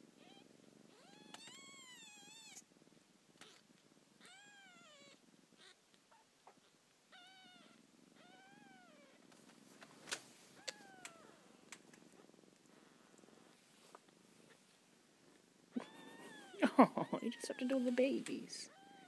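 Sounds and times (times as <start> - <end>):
low steady purr: 0.0 - 19.0
kitten meowing: 0.2 - 2.6, 4.2 - 5.8, 15.7 - 19.0.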